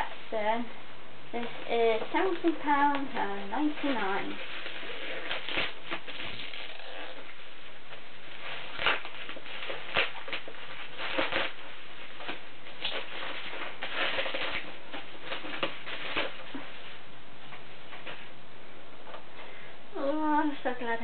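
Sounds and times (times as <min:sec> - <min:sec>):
paper rustling: 0:01.4 - 0:07.0, 0:07.9 - 0:18.3.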